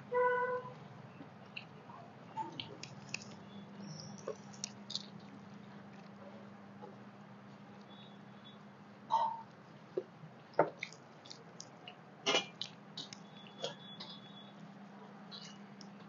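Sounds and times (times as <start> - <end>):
faint chewing: 1.2 - 7.0, 9.5 - 14.2
fingers squishing rice on plates: 2.4 - 6.2, 9.4 - 14.4.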